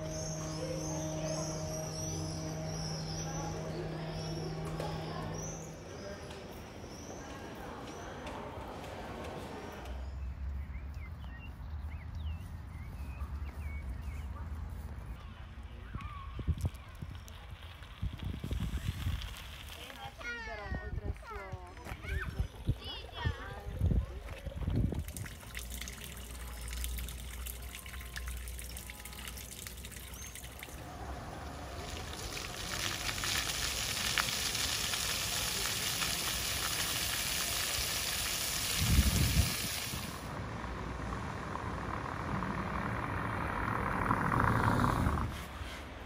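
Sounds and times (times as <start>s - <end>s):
car passing: 0.0s - 10.8s, 30.5s - 35.0s, 40.0s - 46.0s
fountain jets spraying on paving: 16.4s - 45.3s
water pouring into stone basin: 24.3s - 40.3s.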